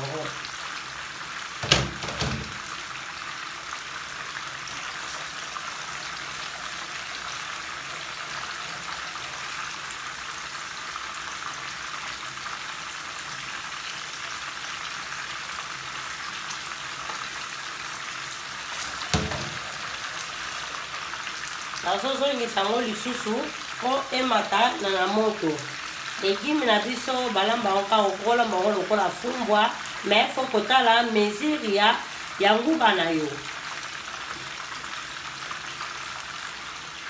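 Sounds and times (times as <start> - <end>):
chicken sizzling in oil: 0.0 - 37.0
metal pot clunking on sink: 1.6 - 2.6, 19.1 - 19.8.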